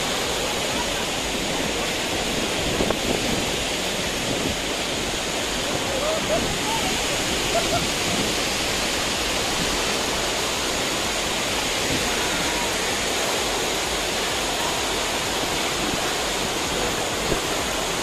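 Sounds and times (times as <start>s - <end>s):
stream running over rocks: 0.0s - 18.0s
waterfall rushing into pool: 0.0s - 18.0s.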